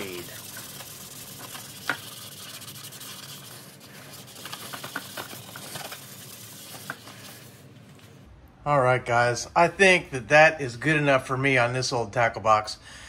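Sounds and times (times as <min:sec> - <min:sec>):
plastic box being scrubbed: 0:00.0 - 0:07.6.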